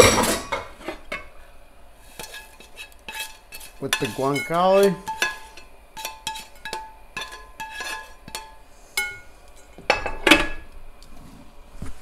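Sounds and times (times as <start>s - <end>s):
tongs scraping metal pan: 2.1s - 9.8s.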